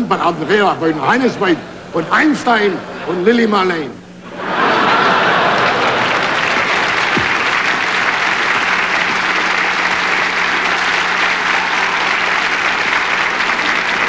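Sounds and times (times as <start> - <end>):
low steady hum: 0.0 - 14.0
audience applauding: 4.4 - 14.0.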